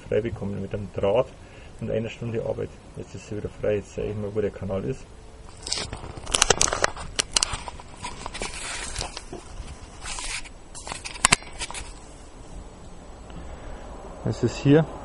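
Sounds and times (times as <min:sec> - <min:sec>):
handling rustling and scraping: 0:05.4 - 0:12.6.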